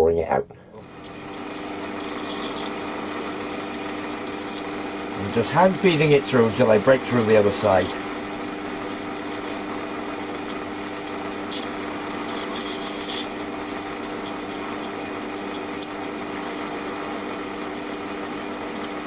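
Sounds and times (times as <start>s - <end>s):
lathe humming: 0.7s - 19.0s
high-pitched cutting hiss: 0.8s - 16.0s.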